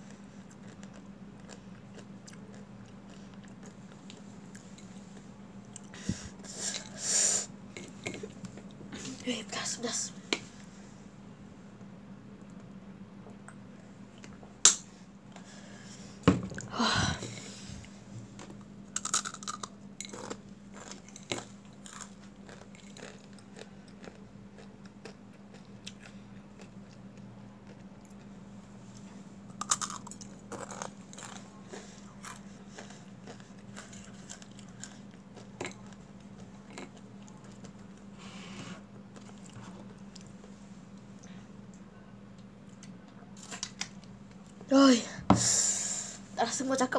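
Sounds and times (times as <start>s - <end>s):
crunching dry noodles: 18.4s - 27.0s, 29.5s - 38.1s.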